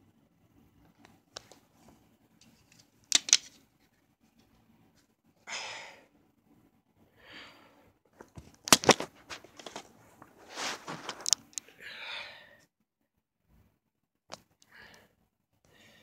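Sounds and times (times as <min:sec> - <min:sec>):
plastic case clicks: 0:03.1 - 0:03.5
soft rustles: 0:08.1 - 0:11.6.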